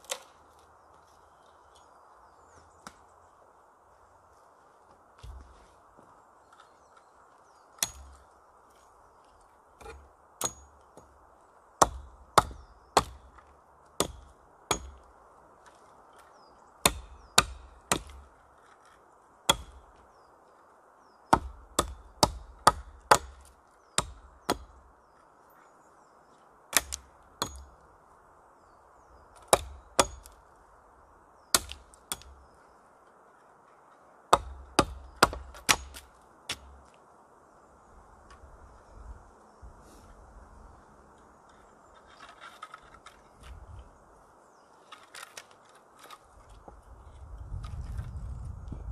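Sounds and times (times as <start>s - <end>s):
hatchet chopping wood: 7.8s - 8.2s, 9.8s - 11.2s, 11.8s - 15.1s, 16.8s - 18.3s, 19.4s - 20.0s, 21.3s - 24.8s, 26.7s - 27.8s, 29.4s - 30.4s, 31.5s - 32.4s, 34.3s - 36.8s.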